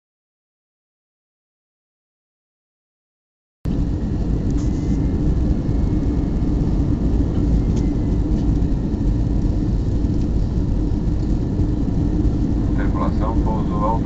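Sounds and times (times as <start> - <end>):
airplane engine drone: 3.7 - 14.0
rushing airflow: 3.7 - 14.0
steady low hum: 3.7 - 14.0.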